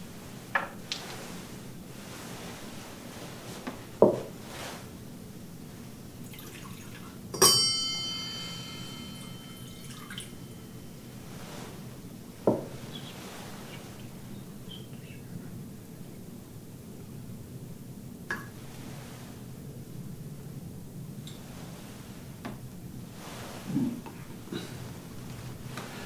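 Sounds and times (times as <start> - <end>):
ringing metal clink: 7.4 - 10.9.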